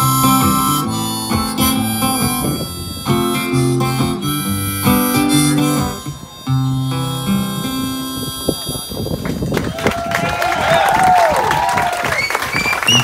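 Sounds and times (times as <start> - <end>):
strummed acoustic guitar: 0.0 - 9.0
harmonica long held notes: 0.0 - 9.5.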